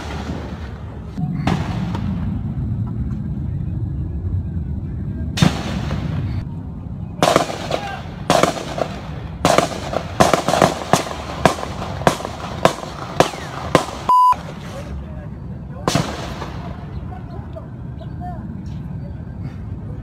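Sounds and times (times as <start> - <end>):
gunshots with echo: 7.2 - 14.1.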